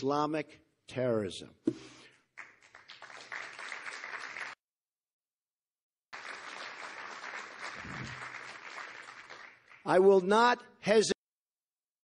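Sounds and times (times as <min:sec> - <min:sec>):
audience applauding: 0:02.4 - 0:04.6, 0:06.1 - 0:10.1.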